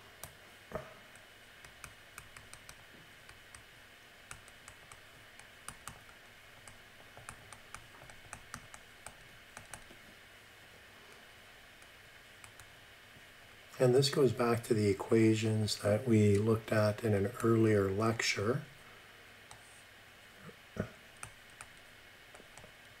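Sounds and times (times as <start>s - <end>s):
stylus tapping tablet screen: 0.2s - 3.7s, 4.3s - 10.0s.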